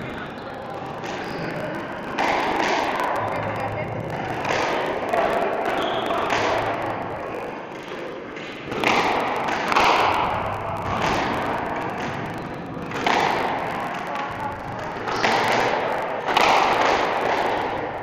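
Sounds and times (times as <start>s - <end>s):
squash ball hitting racket and walls: 1.0s - 3.1s, 4.2s - 12.2s, 14.8s - 17.9s.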